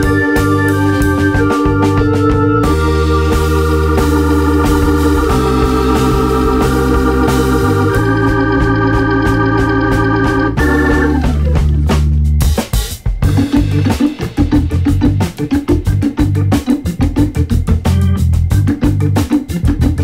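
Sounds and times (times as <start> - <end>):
keyboard chords with bass line: 0.0 - 20.0.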